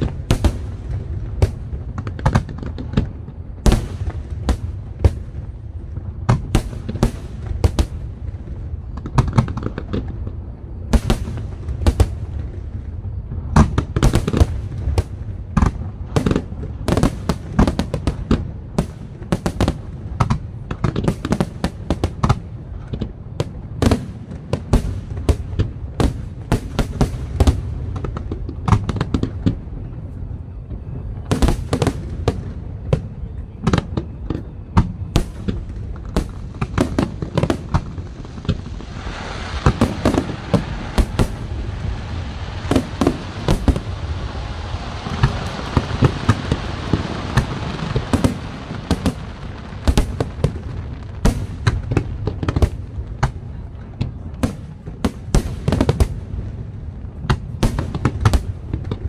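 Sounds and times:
steady hiss: 0.0s - 33.8s, 35.2s - 59.0s
firework shells bursting: 35.2s - 50.6s.

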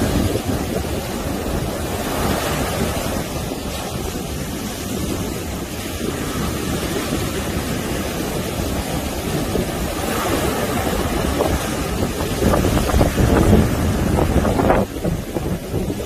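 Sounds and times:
heavy surf breaking on beach: 0.0s - 16.0s.

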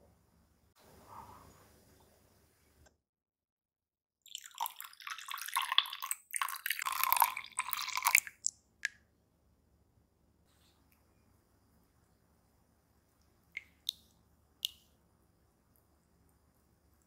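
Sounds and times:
milk pouring and splashing: 4.3s - 8.5s.

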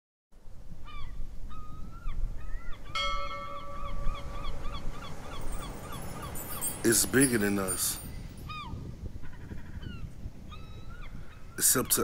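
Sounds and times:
birds honking: 2.5s - 9.9s
steady held tone: 3.0s - 7.9s.

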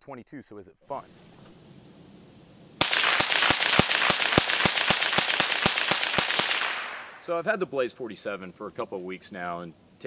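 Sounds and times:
rifle shots: 2.8s - 7.3s.

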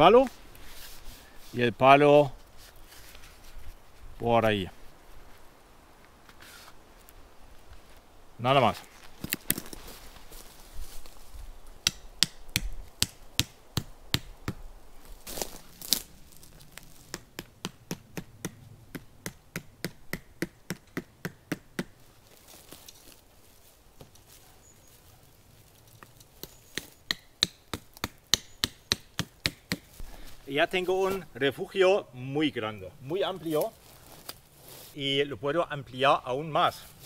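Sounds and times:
stakes being hammered into ground: 11.8s - 14.6s, 17.0s - 22.0s, 26.7s - 30.0s.

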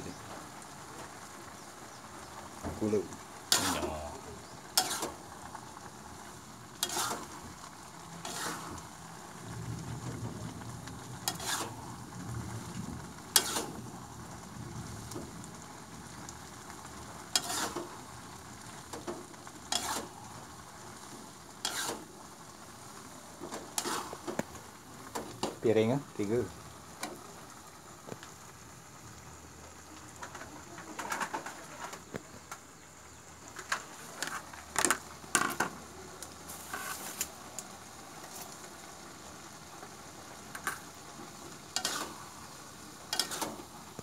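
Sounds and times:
noodles sizzling in a wok: 0.0s - 44.0s
spatula scraping and knocking wok: 3.5s - 7.6s, 8.2s - 8.9s, 11.2s - 12.0s, 13.3s - 14.0s, 17.1s - 18.0s, 18.8s - 20.2s, 21.6s - 22.1s, 23.4s - 25.6s, 33.6s - 35.8s, 36.5s - 37.3s, 40.5s - 44.0s.

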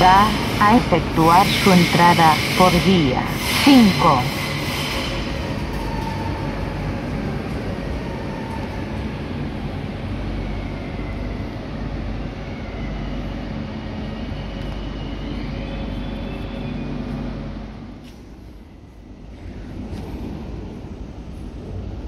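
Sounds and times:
train wheels rumbling: 0.0s - 22.0s.

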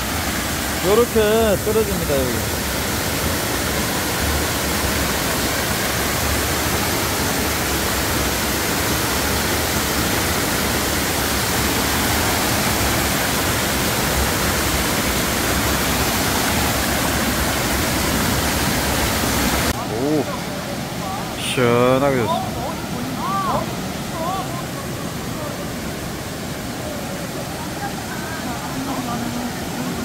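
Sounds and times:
waterfall pouring into pool: 0.0s - 22.8s.

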